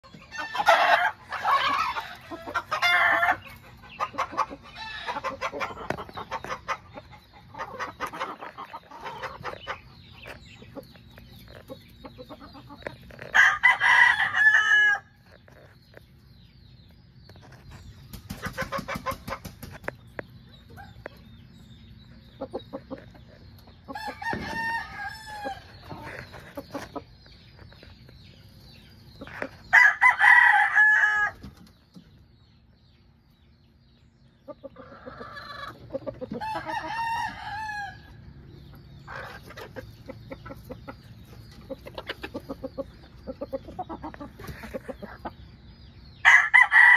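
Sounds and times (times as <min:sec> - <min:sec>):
hens clucking: 0:00.0 - 0:32.4, 0:33.0 - 0:46.9
rooster crowing: 0:13.4 - 0:15.1, 0:29.7 - 0:31.4, 0:46.2 - 0:46.9.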